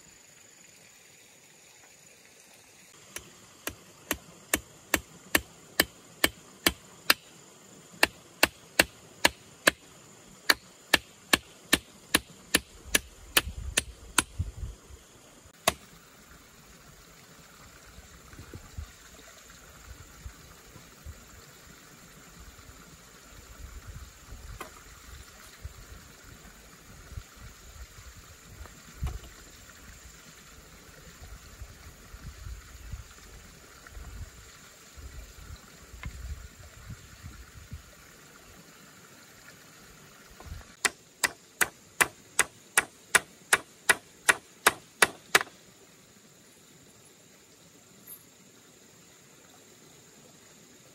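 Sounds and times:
hammer driving nails: 0:42.0 - 0:45.5.

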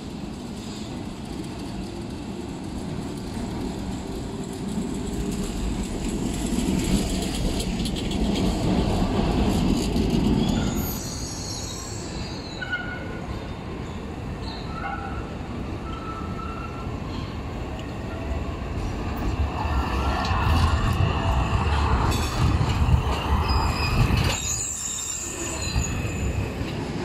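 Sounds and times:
tram rumbling past: 0:00.0 - 0:27.0
high-pitched wheel squeal: 0:10.4 - 0:13.1.

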